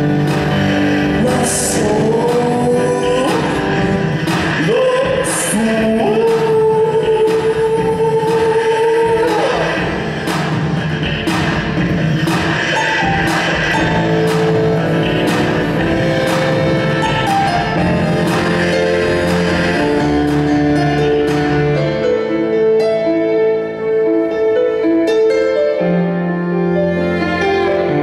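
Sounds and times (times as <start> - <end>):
keyboard: 0.0 - 28.0
violin playing sustained notes: 12.8 - 28.0.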